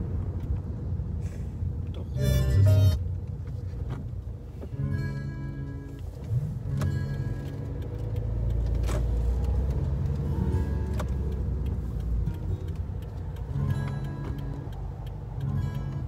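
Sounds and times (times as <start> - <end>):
car engine and road rumble: 0.0 - 16.0
music playing: 2.2 - 3.0.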